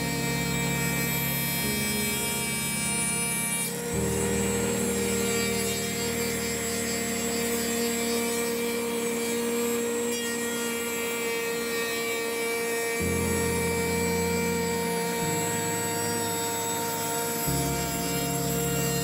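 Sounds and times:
constant machine tone: 0.0s - 19.0s
router milling wood: 0.0s - 19.0s.

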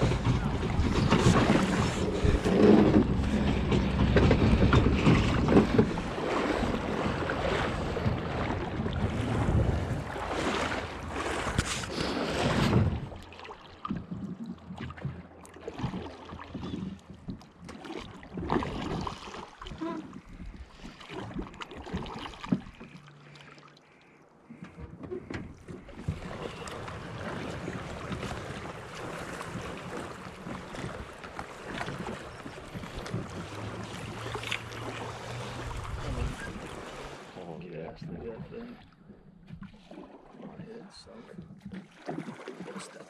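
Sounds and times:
knocks on boat: 0.0s - 9.9s, 24.6s - 34.8s
wind on microphone: 0.0s - 13.2s, 35.3s - 37.1s
water moving around hull: 0.0s - 43.0s.

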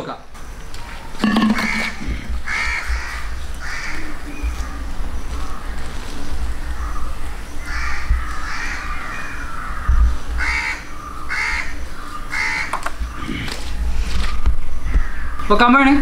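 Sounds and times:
steady low rumble: 0.3s - 12.4s
crows cawing: 0.8s - 16.0s.

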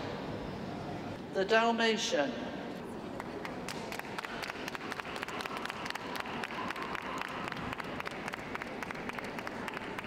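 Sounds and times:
audience applauding: 3.4s - 10.0s.

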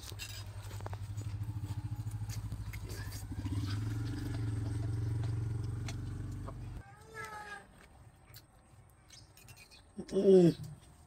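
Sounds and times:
small engine running: 0.3s - 6.8s.

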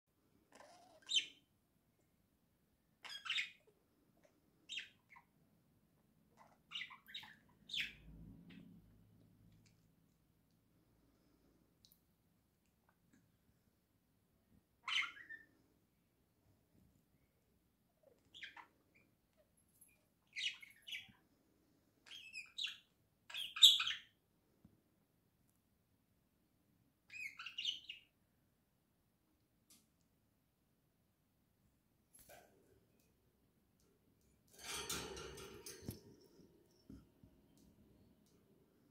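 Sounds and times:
budgerigars chirping: 3.0s - 3.6s, 22.1s - 24.1s.

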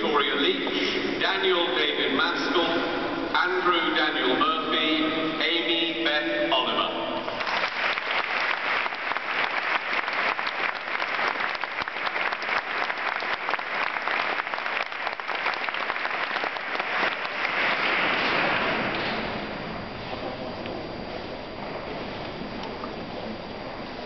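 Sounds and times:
audience applauding: 7.4s - 19.0s.

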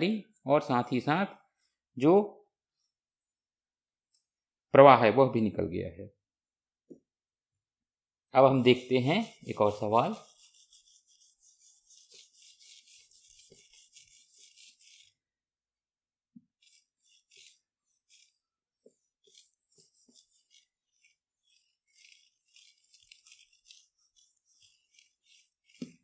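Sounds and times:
duster scrubbing whiteboard: 8.5s - 15.4s, 16.4s - 26.0s.

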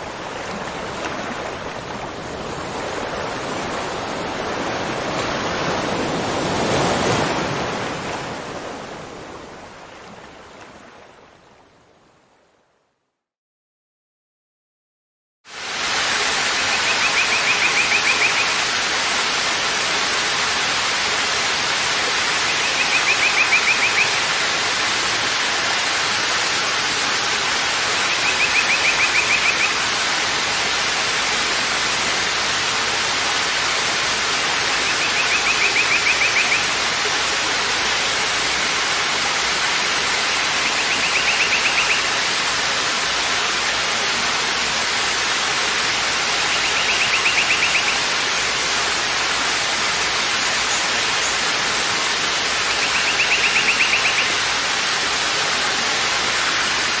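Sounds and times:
waterfall rushing over rocks: 0.0s - 11.4s, 15.5s - 57.0s.

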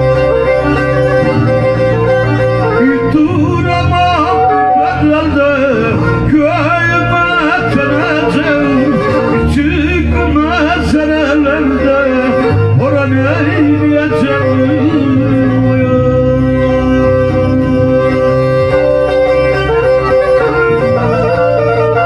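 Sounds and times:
bowed string drone: 0.0s - 22.0s
low held bass notes: 0.0s - 22.0s
man singing folk song: 2.8s - 17.6s.

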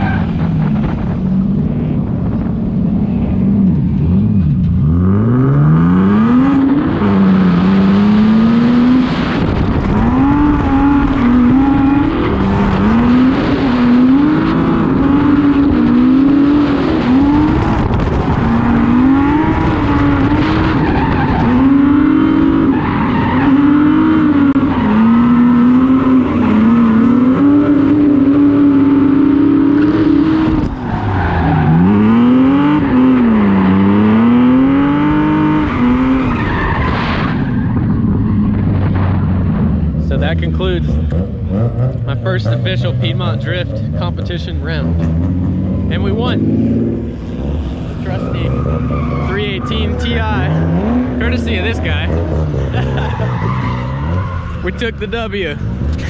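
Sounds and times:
car engine revving: 0.0s - 56.0s
tyre squeal: 48.1s - 50.9s, 51.7s - 54.9s.

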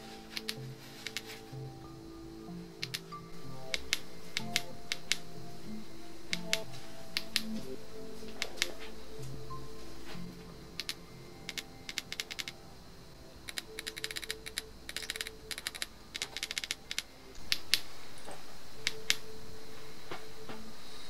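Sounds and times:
faint background music: 0.0s - 21.0s.

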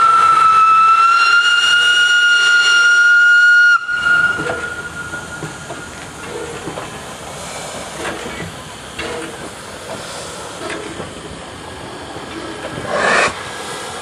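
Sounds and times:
steam locomotive whistle blast: 0.0s - 5.7s
steam hissing: 0.0s - 14.0s.

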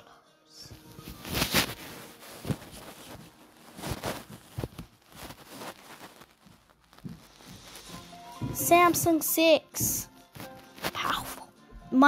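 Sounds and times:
soft handling rustling: 0.7s - 9.1s.

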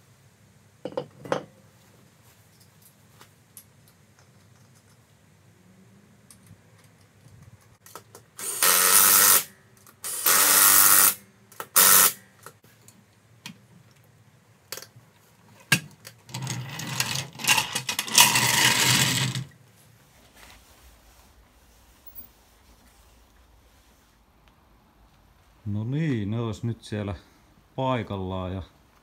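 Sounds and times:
power tool tightening wheel nuts: 8.4s - 12.2s, 16.4s - 19.5s.

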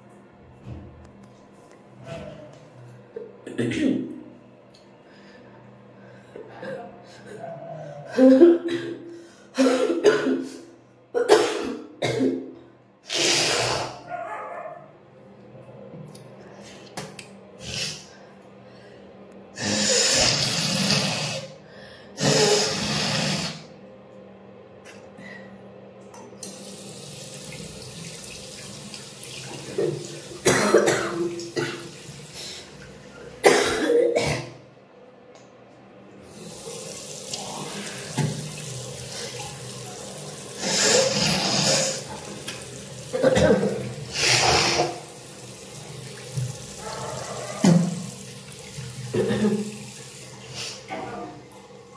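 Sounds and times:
woman blowing her nose: 13.1s - 14.0s, 22.2s - 23.7s, 40.6s - 42.1s, 44.1s - 45.0s
tap running into sink: 38.1s - 38.7s.

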